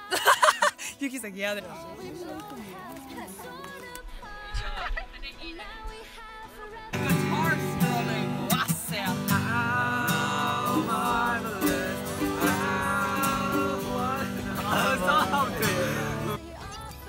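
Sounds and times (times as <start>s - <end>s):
group of voices singing: 5.6s - 17.0s
acoustic guitar strumming chords: 7.0s - 16.4s.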